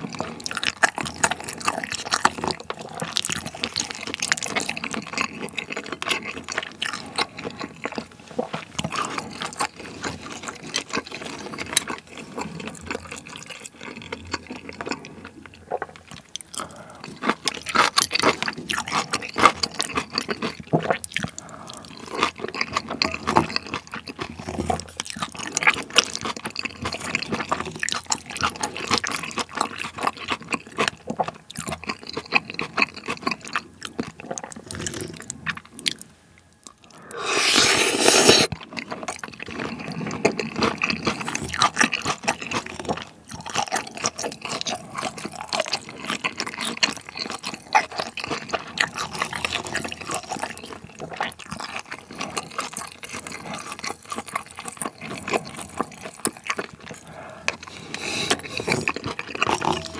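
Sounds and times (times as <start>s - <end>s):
man chewing with wet mouth sounds: 0.0s - 59.9s
wooden spoon scraping in bowl: 37.1s - 38.5s.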